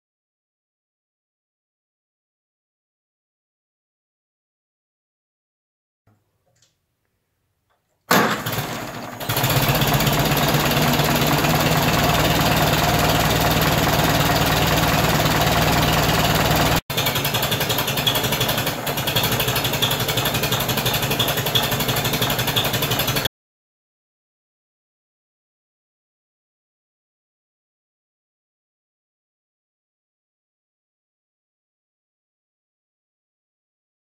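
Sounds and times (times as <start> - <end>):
tractor engine running: 8.1 - 23.3.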